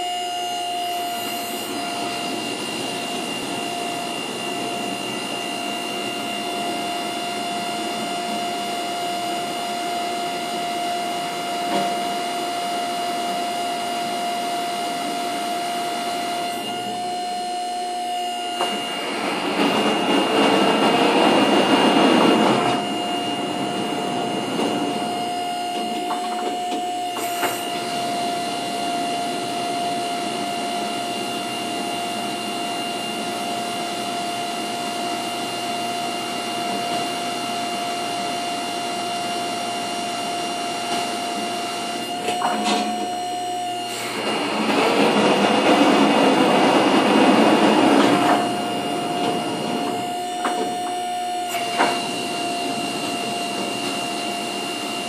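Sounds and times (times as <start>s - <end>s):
sawmill engine hum and whine: 0.0s - 55.0s
rushing noise: 18.7s - 25.7s, 44.1s - 50.3s.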